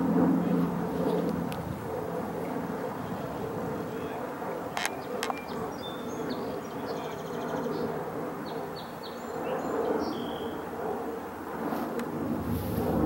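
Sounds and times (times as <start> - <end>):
park background noise: 0.0 - 12.3
small bird chirping: 4.8 - 7.8.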